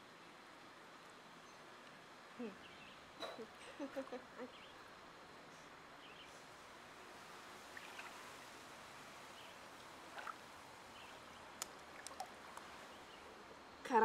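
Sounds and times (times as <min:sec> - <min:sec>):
faint steady hiss: 0:00.0 - 0:14.0
water moving in a pool: 0:04.9 - 0:13.6.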